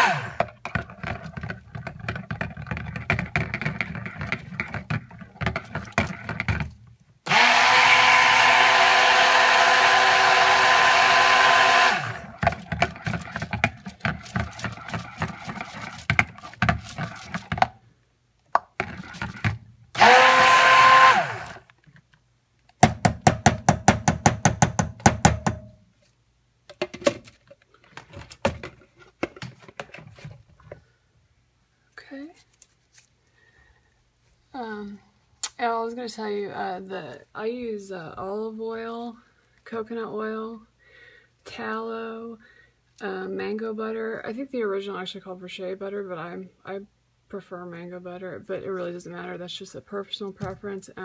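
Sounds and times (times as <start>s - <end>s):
stick blender whirring: 0.0s - 0.5s, 7.3s - 17.4s, 20.0s - 21.7s.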